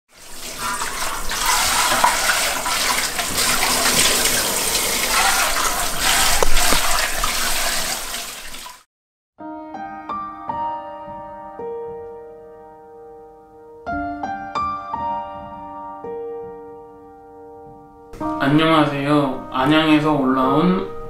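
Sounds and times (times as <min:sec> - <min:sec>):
strainer scrubbed in sink: 0:00.1 - 0:08.8
faucet water running: 0:00.1 - 0:08.9
slow piano music: 0:00.4 - 0:06.6, 0:09.4 - 0:21.0.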